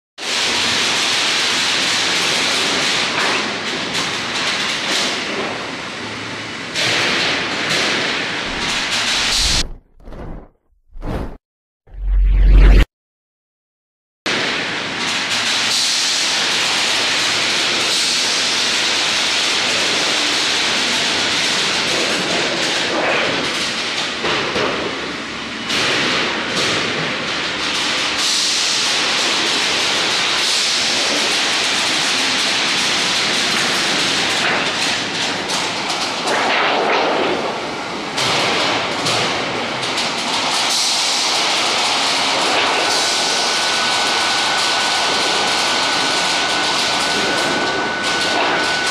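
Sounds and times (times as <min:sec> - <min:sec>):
roll-forming machine hissing: 0:07.8 - 0:09.8, 0:40.0 - 0:48.9.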